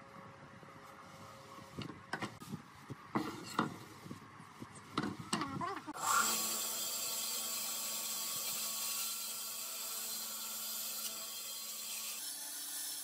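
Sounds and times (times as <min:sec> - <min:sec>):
bandsaw cutting wood: 0:06.0 - 0:13.0.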